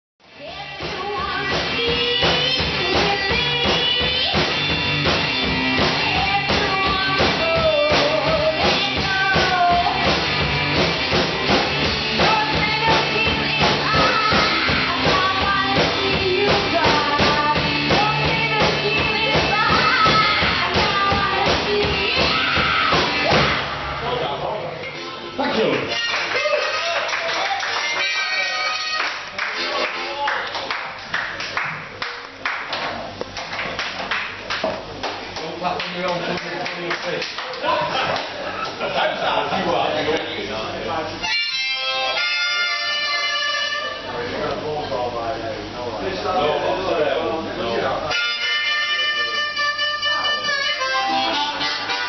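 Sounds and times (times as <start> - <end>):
drum kit: 0.2 - 25.2
woman singing: 0.4 - 4.8, 5.8 - 10.2, 12.1 - 23.6
electric guitar: 0.6 - 26.7.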